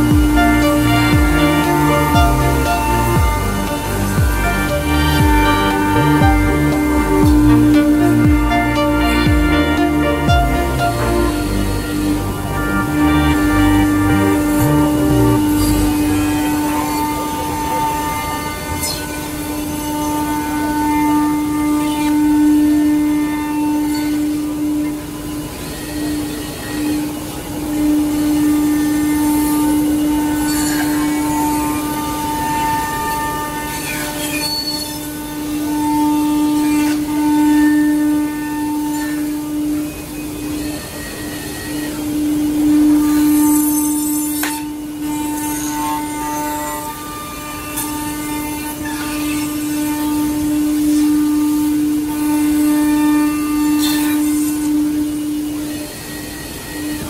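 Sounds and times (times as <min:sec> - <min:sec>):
router spindle milling wood: 0:00.0 - 0:22.3
cutter carving wood: 0:00.0 - 0:57.0
router spindle whining: 0:00.0 - 0:57.0.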